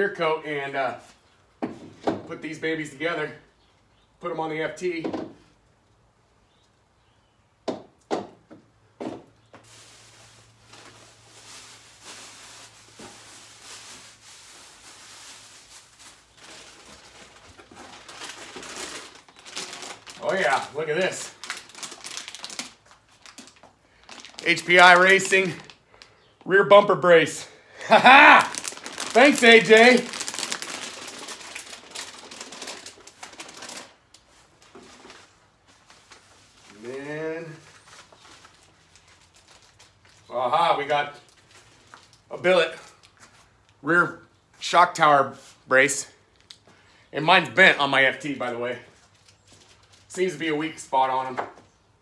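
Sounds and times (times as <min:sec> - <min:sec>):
rustling packing material in box: 0:09.6 - 0:25.8, 0:27.9 - 0:40.3.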